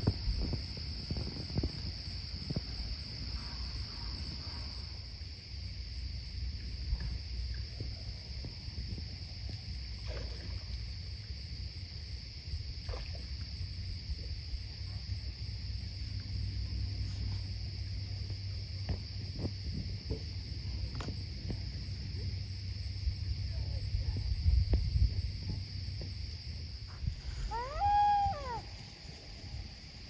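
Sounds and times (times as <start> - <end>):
wind rumble on microphone: 0.0 - 4.7, 11.4 - 30.0
insect chirring: 0.0 - 6.4, 25.6 - 30.0.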